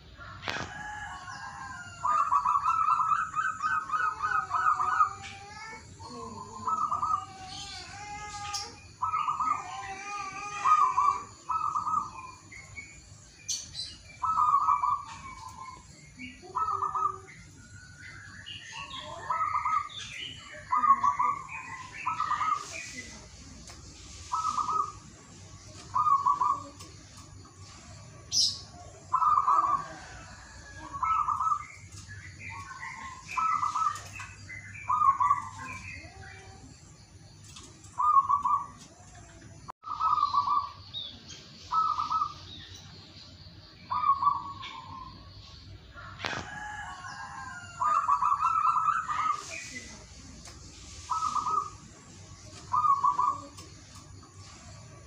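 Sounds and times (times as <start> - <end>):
small birds chirping: 0.0 - 55.0
dove cooing: 0.6 - 5.7, 6.3 - 8.4, 10.4 - 12.5, 14.2 - 15.8, 25.9 - 26.9, 41.7 - 42.4, 52.7 - 53.7.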